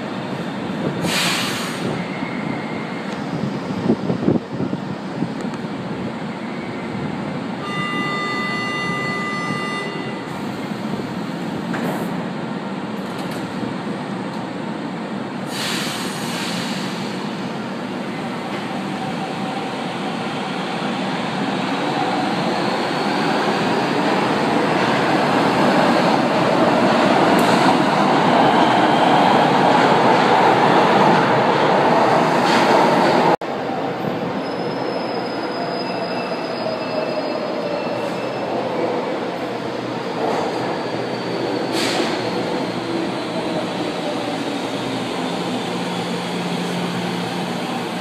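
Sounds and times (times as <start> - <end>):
metro train rumble and motor whine: 0.0 - 48.0
train wheels squealing: 1.1 - 3.5, 6.3 - 10.5, 34.3 - 38.8, 40.0 - 46.8.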